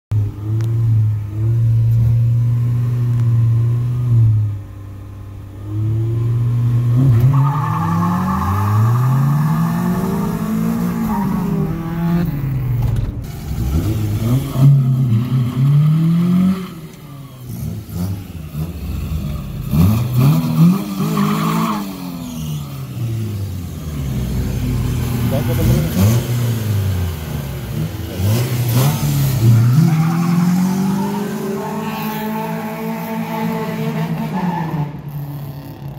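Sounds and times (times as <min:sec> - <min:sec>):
car engine revving hard: 0:13.5 - 0:35.0.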